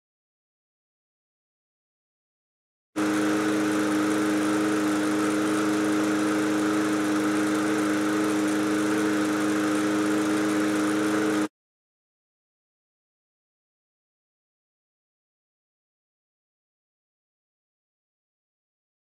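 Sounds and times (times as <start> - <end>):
lawn mower engine running: 3.0 - 11.5.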